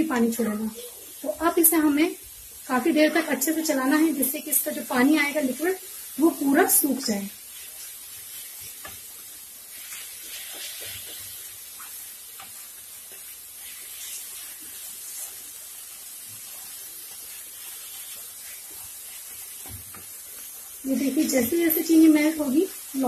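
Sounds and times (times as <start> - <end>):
food sizzling in a wok: 0.0 - 23.0
spatula scraping and tapping pan: 7.6 - 15.4.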